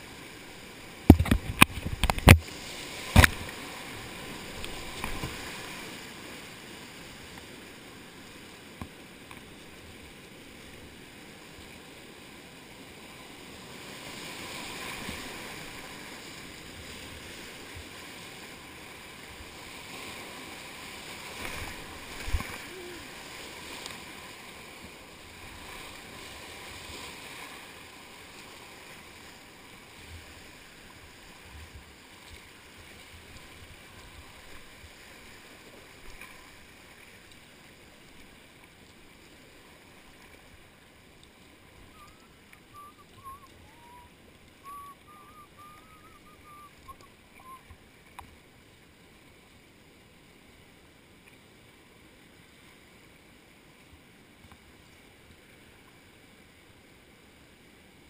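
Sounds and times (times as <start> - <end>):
paddle strokes: 0.0 - 11.6, 13.1 - 53.0
water hitting kayak: 0.9 - 6.2, 14.1 - 27.7
whitewater rapids rushing: 14.1 - 28.4, 41.7 - 47.7.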